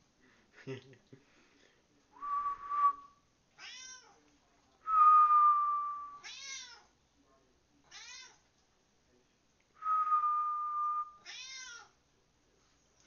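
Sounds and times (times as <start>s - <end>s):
person whistling: 2.2s - 3.1s, 9.8s - 11.1s
cat meowing: 3.6s - 4.2s, 6.2s - 6.9s, 7.9s - 8.4s, 11.2s - 11.9s.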